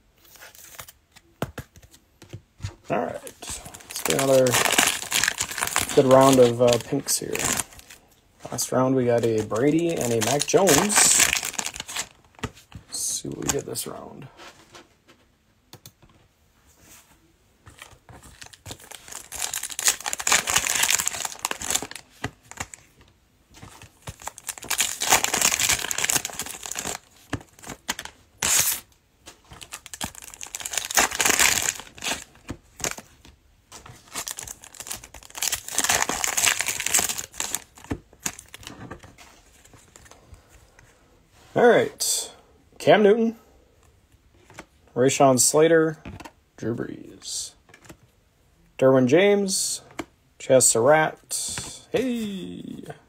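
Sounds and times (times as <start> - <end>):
plastic wrappers crinkling and tearing: 3.0 - 12.4, 17.8 - 22.9, 23.6 - 28.9, 29.5 - 33.1, 33.7 - 40.2.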